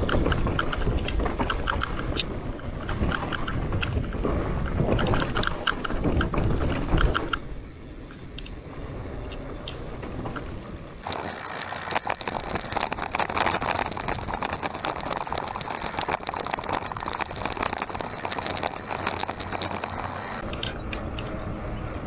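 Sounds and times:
rattle of small clicks: 0.0s - 7.5s, 9.3s - 21.4s
bike tyres crunching on gravel: 11.0s - 20.5s.

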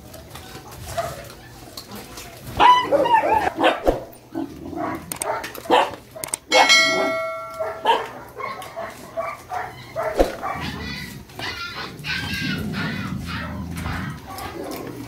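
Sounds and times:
dogs barking and whining: 0.0s - 15.0s
bell-like ringing tone: 6.5s - 7.9s.

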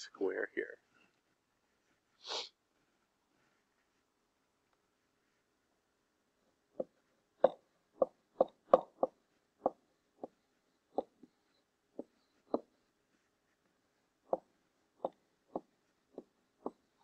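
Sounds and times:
stylus tapping on writing surface: 6.8s - 11.3s, 12.0s - 12.7s, 14.3s - 17.0s.

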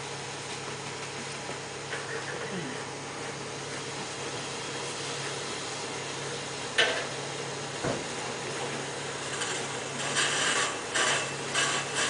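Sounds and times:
rasping scraping strokes: 9.2s - 12.0s.

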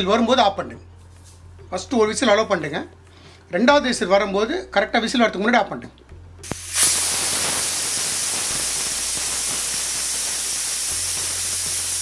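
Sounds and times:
pressure cooker steam hissing: 6.4s - 12.0s.

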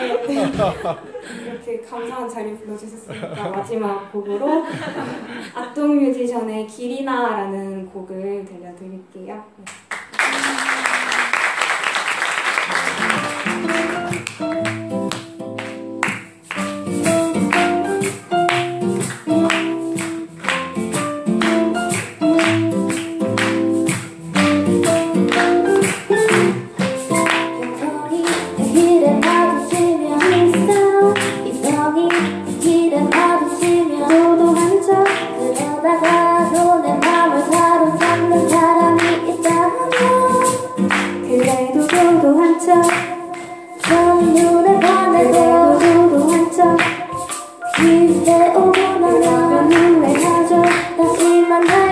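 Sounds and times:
band playing: 12.4s - 51.9s
steady percussion beat: 15.8s - 27.6s
person singing: 25.3s - 51.9s.

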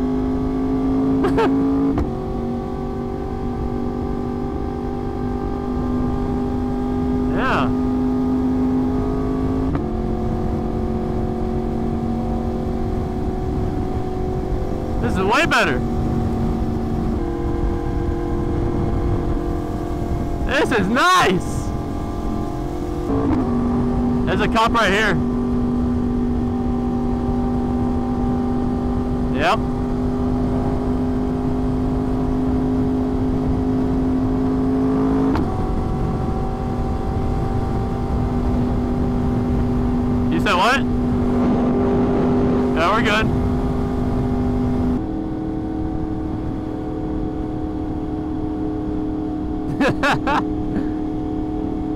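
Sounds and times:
motorcycle engine running steadily: 0.0s - 34.8s, 35.5s - 51.9s
wind rush: 12.8s - 24.2s.

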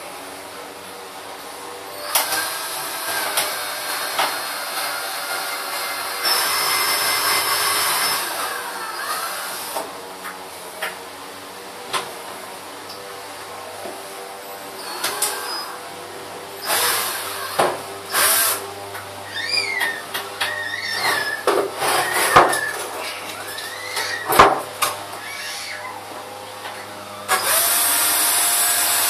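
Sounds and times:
cordless drill boring into plastic: 2.0s - 9.8s, 16.6s - 18.6s, 27.3s - 29.0s.

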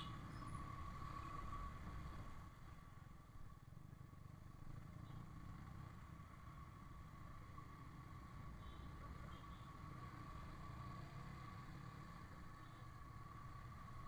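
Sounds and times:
road noise: 0.0s - 14.0s.

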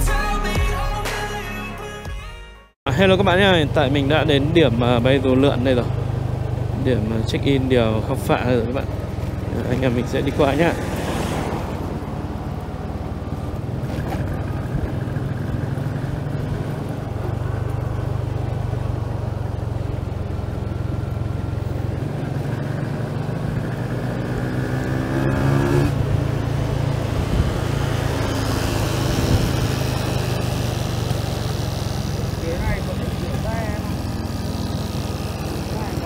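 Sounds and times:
vehicle engine running: 2.9s - 36.0s
wind noise: 25.5s - 30.2s.

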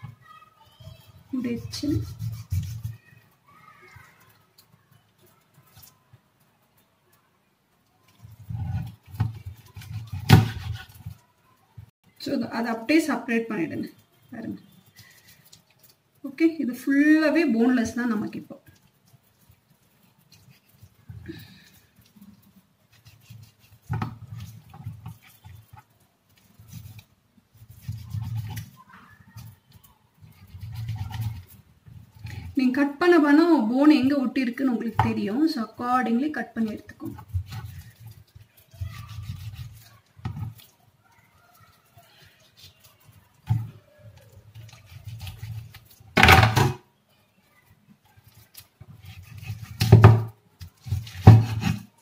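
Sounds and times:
knife cutting meat on board: 2.0s - 2.9s, 8.7s - 11.2s, 27.6s - 28.8s, 30.3s - 31.6s, 37.2s - 40.7s, 44.5s - 46.0s, 48.3s - 51.9s.

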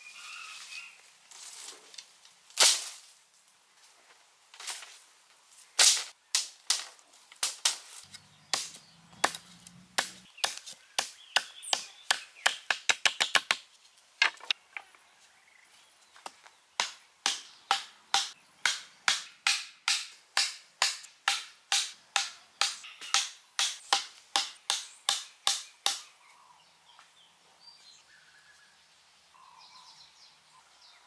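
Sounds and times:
machete chopping wood: 8.5s - 13.6s, 16.8s - 26.1s
stake pounded into ground: 11.4s - 14.6s.

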